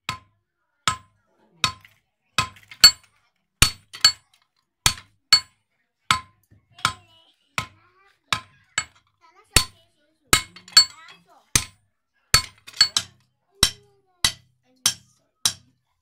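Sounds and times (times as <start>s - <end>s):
hammer striking hot steel on anvil: 3.6s - 4.2s, 4.9s - 5.5s, 10.4s - 11.8s, 12.4s - 15.6s.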